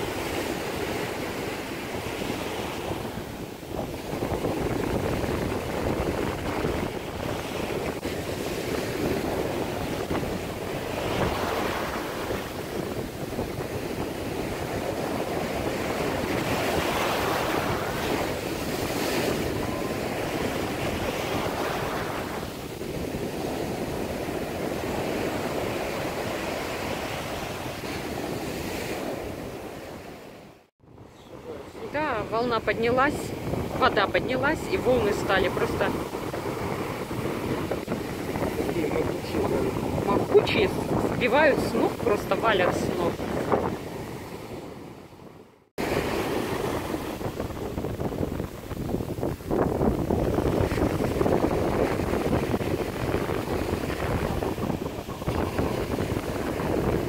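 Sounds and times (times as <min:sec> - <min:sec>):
wind buffeting microphone: 0:00.0 - 0:30.1, 0:30.8 - 0:57.0
waves breaking on sand: 0:00.0 - 0:57.0.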